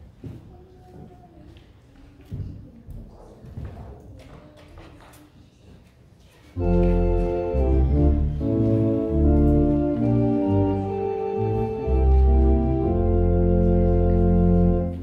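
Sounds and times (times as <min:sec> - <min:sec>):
organ playing hymn chords: 0:06.6 - 0:15.0.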